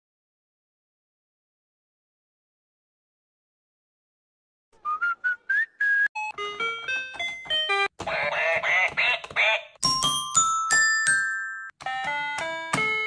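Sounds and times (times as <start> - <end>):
wavering electronic toy piano: 6.2 - 8.0, 9.8 - 13.0
toy keyboard notes: 6.2 - 13.0.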